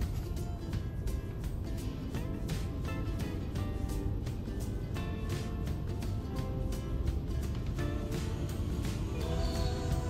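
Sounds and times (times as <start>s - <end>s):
low rumble: 0.0s - 10.0s
music with steady beat: 0.0s - 10.0s.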